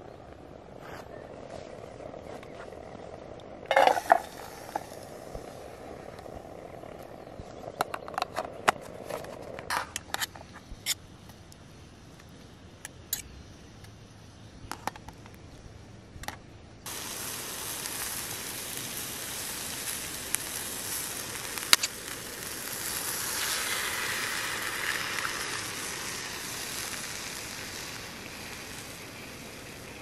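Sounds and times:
vegetables sizzling in pan: 0:03.7 - 0:08.2, 0:16.9 - 0:30.0.

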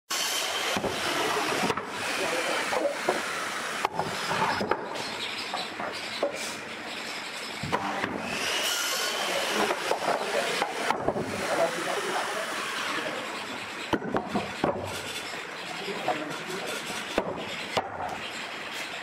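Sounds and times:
wood knocking on wood: 0:13.9 - 0:15.0.

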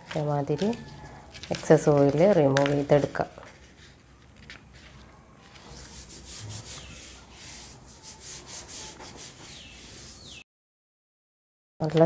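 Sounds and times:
paper swishing under a hand: 0:03.4 - 0:10.4.

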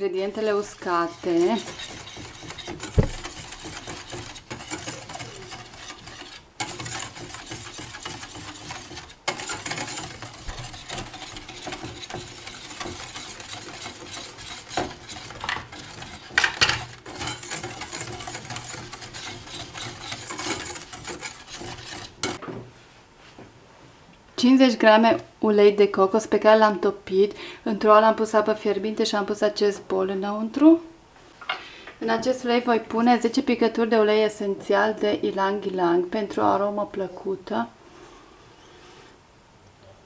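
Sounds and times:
whisk scraping dry powder: 0:00.0 - 0:22.4
whisk clinking on bowl: 0:00.2 - 0:22.4.

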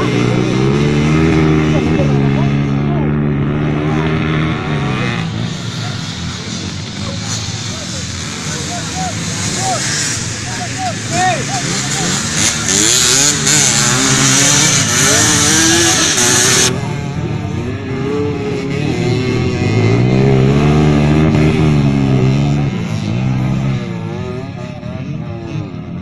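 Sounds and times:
dirt bike engines revving: 0:00.0 - 0:26.0.

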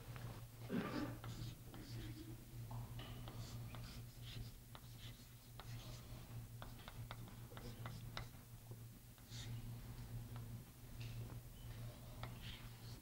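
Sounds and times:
steady low hum: 0:00.0 - 0:13.0
chalk scratching on blackboard: 0:03.2 - 0:08.3.

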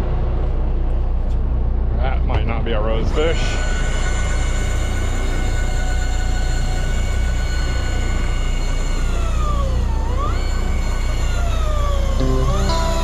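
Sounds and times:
electric fishing reel motor whining: 0:03.3 - 0:13.0.

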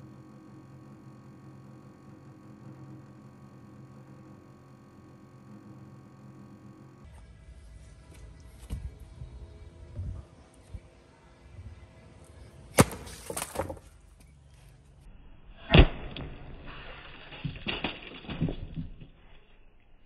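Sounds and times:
hammer smashing watermelon: 0:12.8 - 0:13.8.

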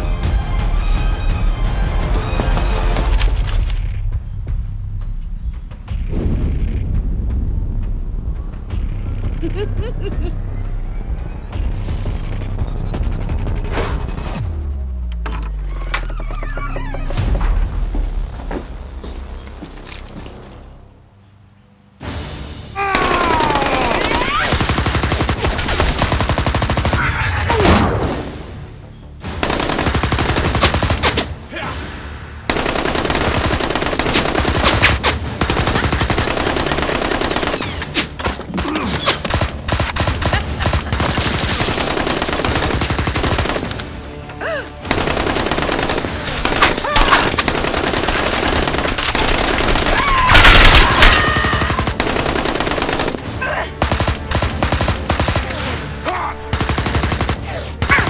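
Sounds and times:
rapid automatic gunfire: 0:23.0 - 0:27.0, 0:29.4 - 0:31.3, 0:32.5 - 0:38.2, 0:39.2 - 0:43.9, 0:44.9 - 0:55.7, 0:56.5 - 0:58.0.

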